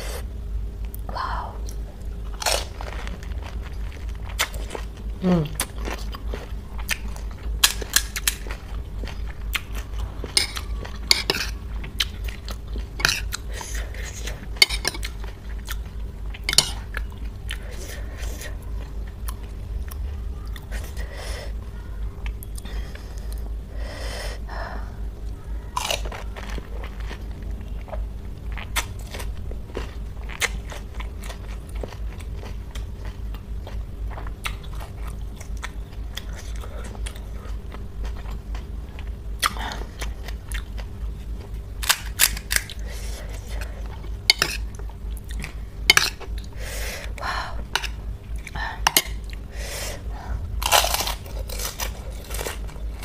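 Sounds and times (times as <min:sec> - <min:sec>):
low hum: 0:00.0 - 0:53.0
person chewing crisp food: 0:00.9 - 0:21.1, 0:25.7 - 0:53.0.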